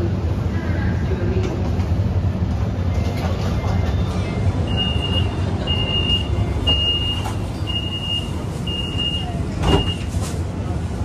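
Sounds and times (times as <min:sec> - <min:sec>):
train low hum: 0:00.0 - 0:11.0
train door warning beeps: 0:03.6 - 0:10.2.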